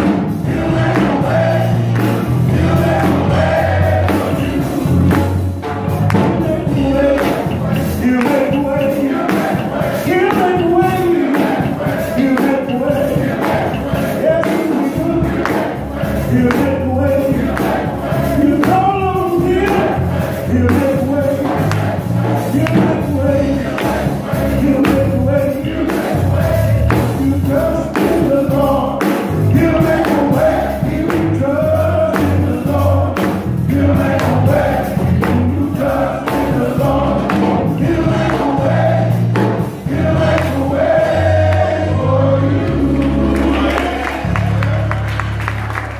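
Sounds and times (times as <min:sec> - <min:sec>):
bass line: 0:00.0 - 0:45.9
keyboard: 0:00.0 - 0:45.9
men's gospel choir singing: 0:00.0 - 0:45.9
hand claps: 0:01.9 - 0:02.3, 0:07.2 - 0:10.7, 0:12.2 - 0:15.8, 0:20.7 - 0:21.0, 0:21.6 - 0:22.0, 0:40.3 - 0:40.6, 0:43.0 - 0:45.9.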